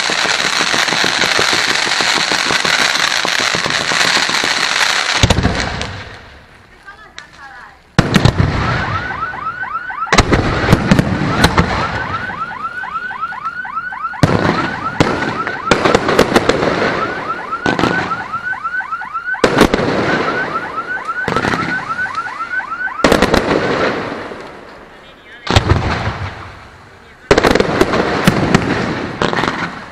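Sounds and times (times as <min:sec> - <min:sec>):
firework shells bursting: 0:00.0 - 0:08.9
car alarm whooping: 0:08.6 - 0:15.9, 0:16.9 - 0:23.2.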